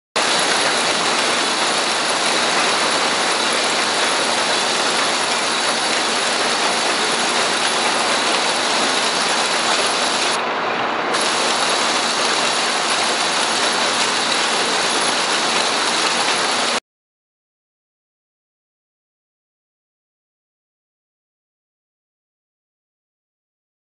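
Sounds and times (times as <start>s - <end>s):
boards on roller conveyor: 0.2s - 16.8s
loud machinery noise: 0.2s - 16.8s.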